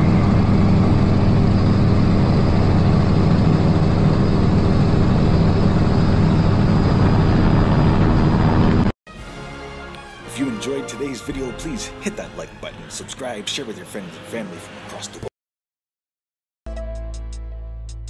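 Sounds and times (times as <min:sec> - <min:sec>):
propeller aircraft engine droning: 0:00.0 - 0:08.9.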